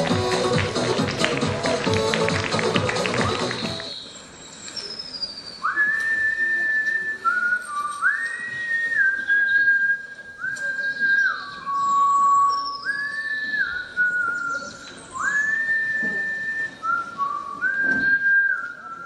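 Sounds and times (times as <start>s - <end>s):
music: 0.0s - 3.9s
person whistling slow tune: 5.6s - 19.0s.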